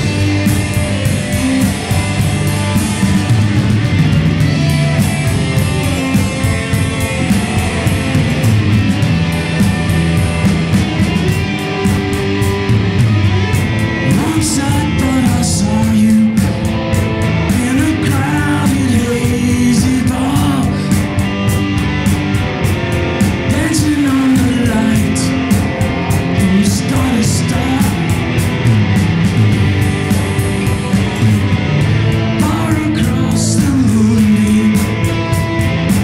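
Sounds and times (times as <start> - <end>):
live rock band playing: 0.0 - 36.0
man singing: 13.9 - 16.7, 17.4 - 21.2, 23.4 - 28.3, 32.0 - 35.4.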